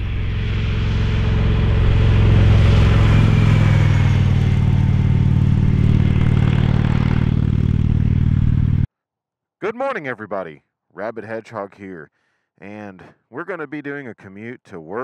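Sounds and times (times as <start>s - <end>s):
motorcycle engine passing by: 0.0s - 8.9s.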